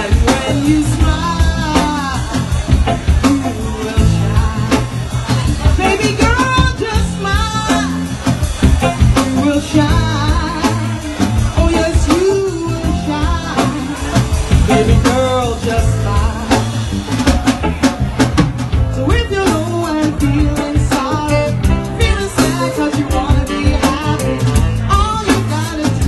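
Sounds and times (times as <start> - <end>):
woman singing: 0.0 - 8.1, 8.8 - 16.8, 18.9 - 26.0
drum kit beat: 0.0 - 26.0
guitar: 0.0 - 26.0
saxophone: 19.1 - 26.0.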